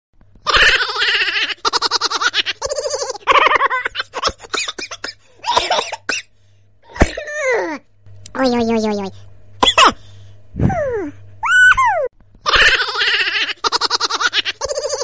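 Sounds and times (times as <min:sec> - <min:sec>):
person laughing in high bursts: 0:00.4 - 0:05.7, 0:11.5 - 0:15.0.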